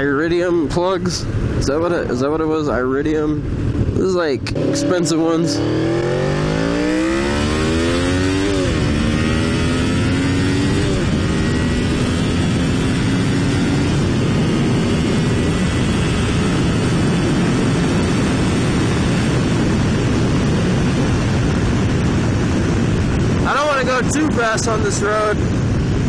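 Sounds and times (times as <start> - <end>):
wind rush on microphone: 0.0 - 26.0
motorcycle engine accelerating: 3.4 - 24.8.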